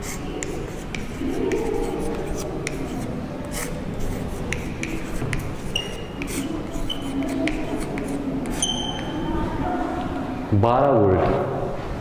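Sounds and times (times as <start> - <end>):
chalk tapping and scratching: 0.0 - 9.2
high-pitched chalk squeaks: 0.0 - 9.3.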